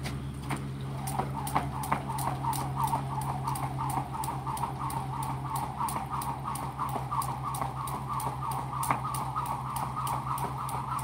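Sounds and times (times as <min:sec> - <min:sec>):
constant low hum: 0:00.0 - 0:11.0
jump rope slapping the ground: 0:00.0 - 0:11.0.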